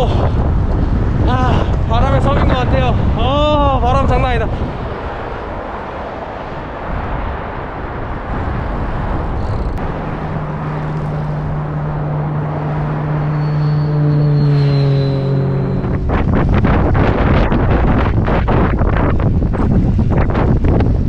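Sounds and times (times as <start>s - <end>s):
wind rushing over microphone: 0.0s - 21.0s
vehicle engine humming: 4.6s - 19.8s.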